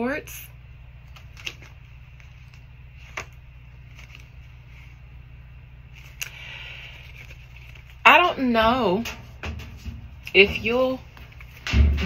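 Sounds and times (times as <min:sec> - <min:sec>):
cards being shuffled: 0:01.0 - 0:04.9, 0:06.0 - 0:08.0.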